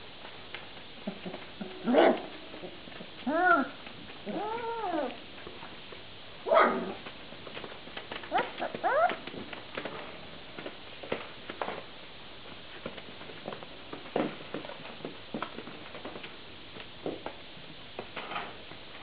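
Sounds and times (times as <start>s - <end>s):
puppy barking: 1.9s - 2.3s, 6.5s - 7.0s
puppies whining and yipping: 3.3s - 5.2s, 8.3s - 9.3s
paws scratching on newspaper: 6.6s - 16.9s.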